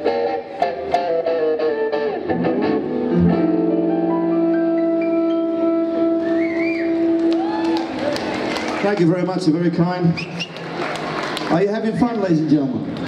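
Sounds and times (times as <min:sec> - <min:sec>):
jump blues trio playing: 0:00.0 - 0:08.8.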